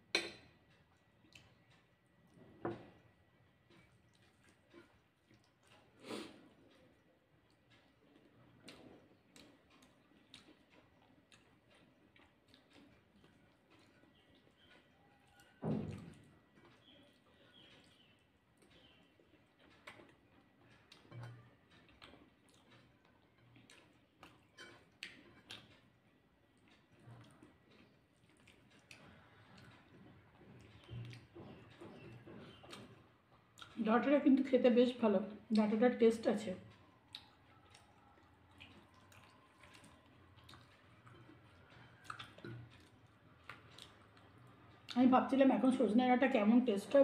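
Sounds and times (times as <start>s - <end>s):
fingers mixing rice on a plate: 0.6s - 33.7s, 36.7s - 44.6s
mouth smacks chewing: 3.7s - 33.8s, 36.7s - 45.0s.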